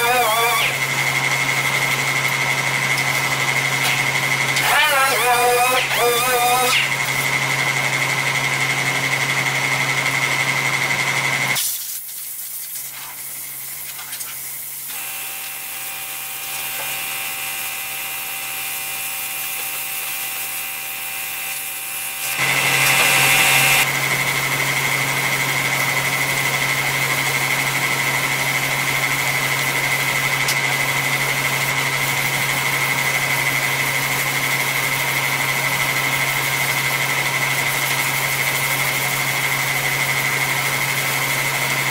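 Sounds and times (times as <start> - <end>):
sander whining: 0.0 - 11.6, 14.9 - 34.1
quieter different hum: 14.9 - 24.4.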